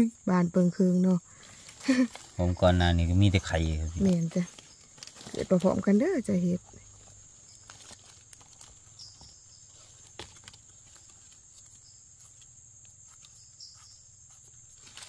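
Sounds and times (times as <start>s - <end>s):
high-pitched insect drone: 0.0s - 7.7s
faint clicks and rustles: 1.2s - 2.7s, 3.3s - 15.0s.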